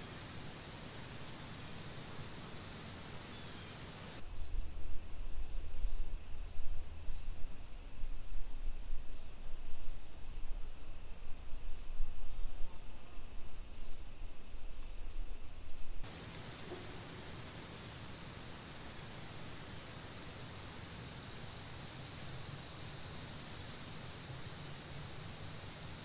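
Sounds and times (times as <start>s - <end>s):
insect pulsing call: 20.3s - 24.2s.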